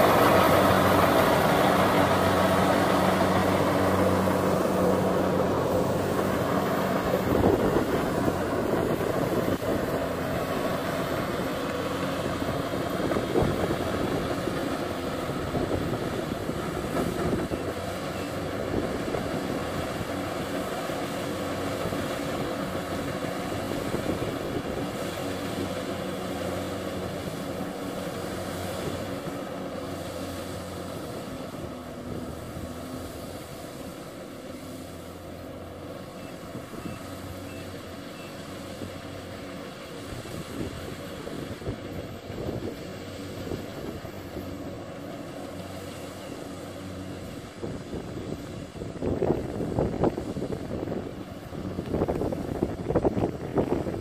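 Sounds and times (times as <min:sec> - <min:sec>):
combine harvester diesel engine: 0:00.0 - 0:54.0.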